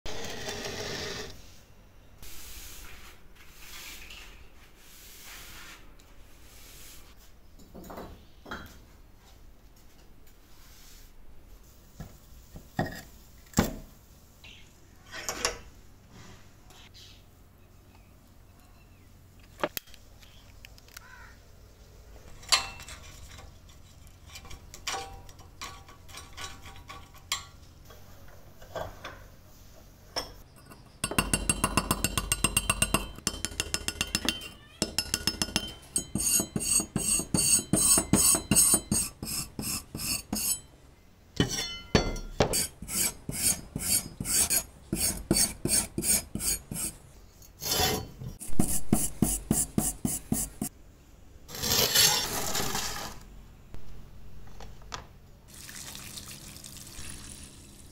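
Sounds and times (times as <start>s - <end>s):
screwdriver scraping rust: 30.6s - 40.7s, 42.5s - 50.7s
wire brush scrubbing metal: 31.1s - 40.7s, 41.4s - 47.0s, 47.6s - 50.7s.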